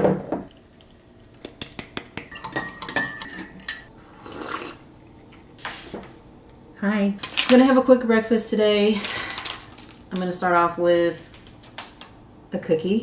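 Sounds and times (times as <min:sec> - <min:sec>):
spoon clinking in mug: 0:02.3 - 0:03.9
sip from mug: 0:04.0 - 0:04.8.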